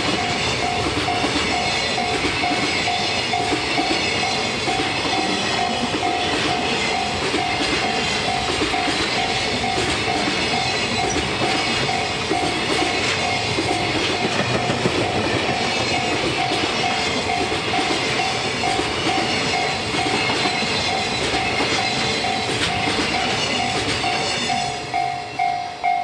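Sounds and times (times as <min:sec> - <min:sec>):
freight train rolling past: 0:00.0 - 0:26.0
clatter over rail joints: 0:07.3 - 0:24.3.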